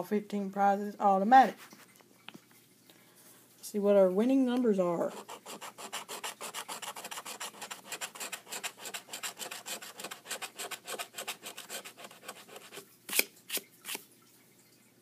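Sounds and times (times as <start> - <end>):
coin scraping scratch card: 5.1 - 13.2.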